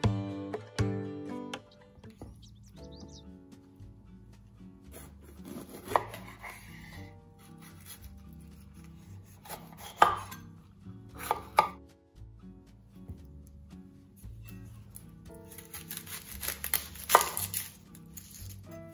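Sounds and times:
knife chopping on wooden board: 0:05.0 - 0:07.0, 0:09.0 - 0:10.4, 0:11.2 - 0:11.8.

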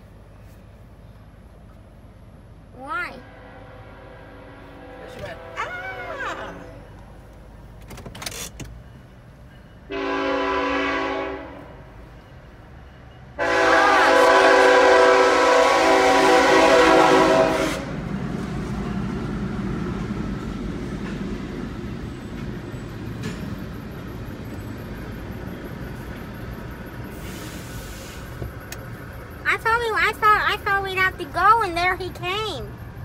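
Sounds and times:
train rumbling: 0:00.0 - 0:33.0
locomotive air horn blasts: 0:03.2 - 0:06.8, 0:09.9 - 0:11.8, 0:13.4 - 0:18.0.

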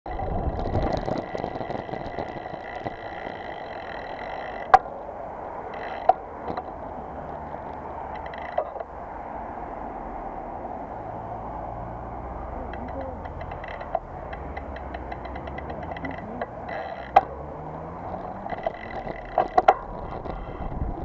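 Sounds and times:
bike clicks and knocks: 0:00.1 - 0:08.9, 0:12.6 - 0:21.0
bicycle tyre and wind noise: 0:00.1 - 0:21.0.

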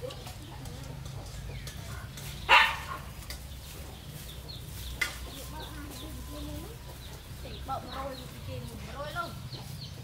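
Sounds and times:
dog barking: 0:02.5 - 0:03.1.

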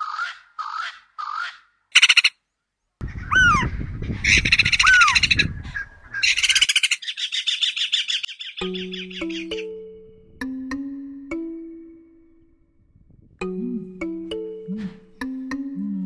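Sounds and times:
bird rattling chatter with whistles: 0:00.0 - 0:02.3
bird giving harsh grating calls: 0:00.0 - 0:02.4, 0:03.1 - 0:05.5, 0:06.1 - 0:09.6
low rumble: 0:12.2 - 0:14.1.

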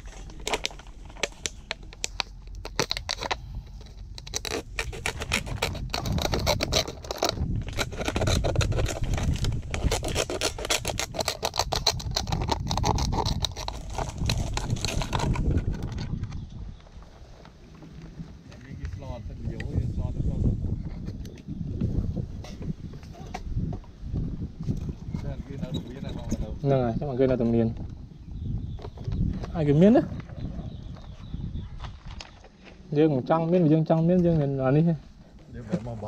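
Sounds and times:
plastic crackling: 0:00.0 - 0:16.2
scissors cutting plastic bottle: 0:00.4 - 0:16.0.

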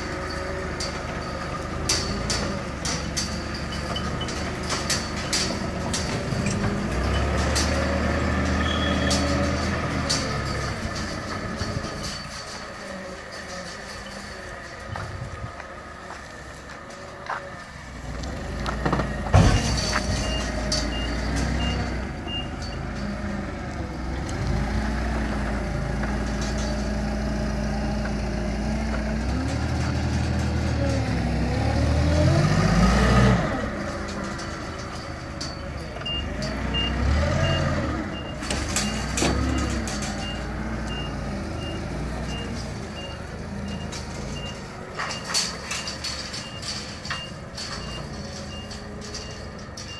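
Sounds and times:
forklift engine revving: 0:00.0 - 0:49.9
reversing alarm beeps: 0:19.5 - 0:22.9, 0:36.0 - 0:44.6.

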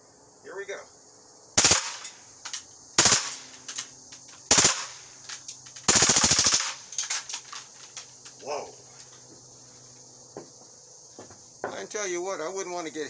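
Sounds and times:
bb pistol firing full auto: 0:01.6 - 0:02.2, 0:03.0 - 0:05.0, 0:05.8 - 0:06.9.

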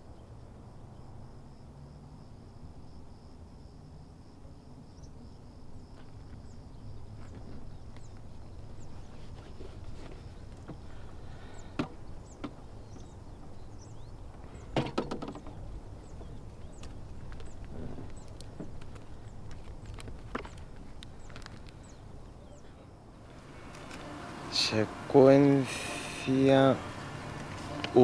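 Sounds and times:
faint high whine: 0:23.2 - 0:28.0.

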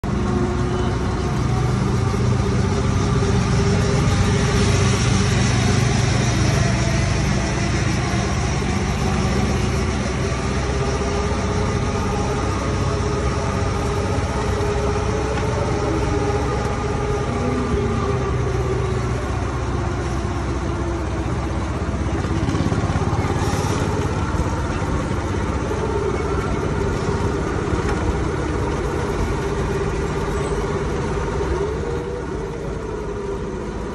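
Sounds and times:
go-kart engine running: 0:00.0 - 0:33.9
tyres humming on asphalt: 0:00.0 - 0:33.9.

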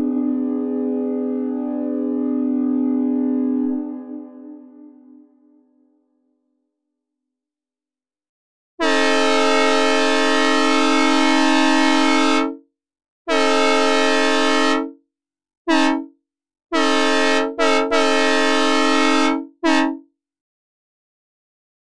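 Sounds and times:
three-chime locomotive horn blasts: 0:00.0 - 0:05.6, 0:08.8 - 0:12.6, 0:13.3 - 0:14.9, 0:15.7 - 0:16.0, 0:16.8 - 0:20.0.

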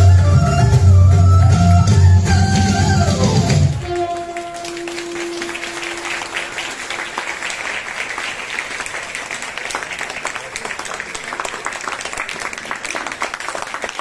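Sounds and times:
audience applauding: 0:03.8 - 0:14.0.

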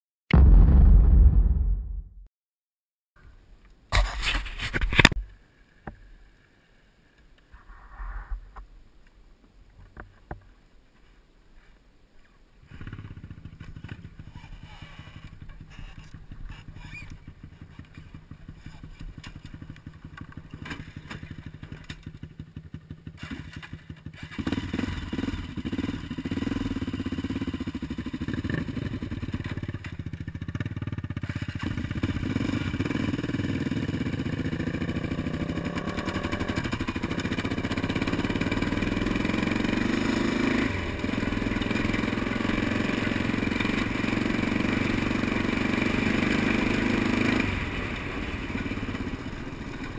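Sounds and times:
quad engine idling and revving: 0:12.8 - 0:49.9.

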